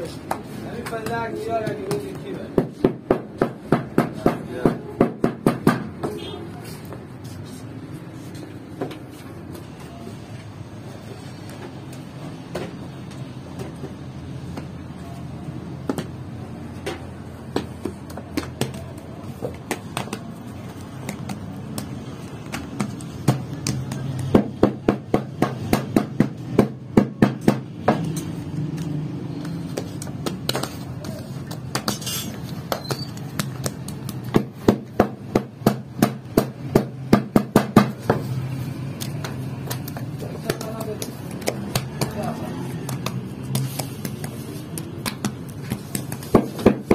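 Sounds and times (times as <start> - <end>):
hands patting dough: 15.7 - 27.8, 28.7 - 46.9
bread stamp knocking on dough: 45.0 - 46.9.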